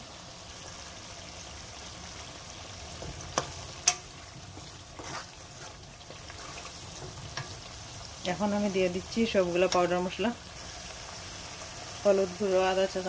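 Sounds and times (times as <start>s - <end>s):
paste sizzling in hot oil: 0.0s - 13.0s
spatula stirring in a pot: 2.7s - 12.0s.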